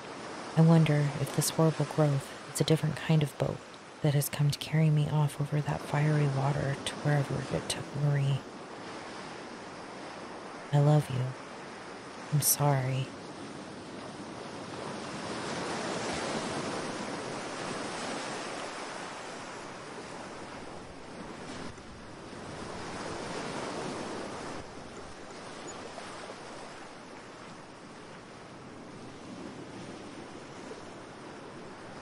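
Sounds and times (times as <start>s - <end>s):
waves washing onto shore: 0.0s - 32.0s.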